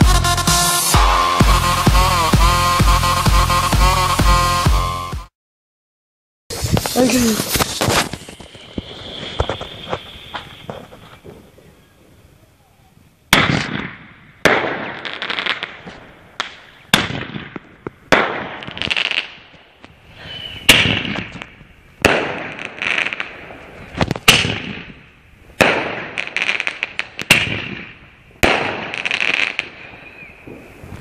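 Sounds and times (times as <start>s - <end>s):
firework bangs: 6.5s - 11.7s, 13.3s - 31.0s
firework crackling: 6.5s - 12.4s, 13.3s - 31.0s.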